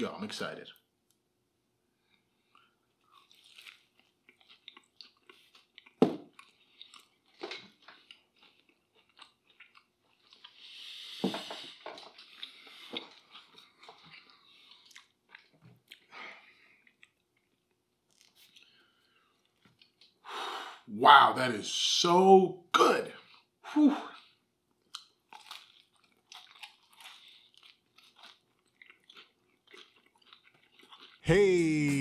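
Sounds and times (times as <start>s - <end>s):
chewing and biting pizza: 2.4s - 10.9s, 12.0s - 20.2s, 24.2s - 32.0s
mouth clicks and crunches: 24.8s - 32.0s.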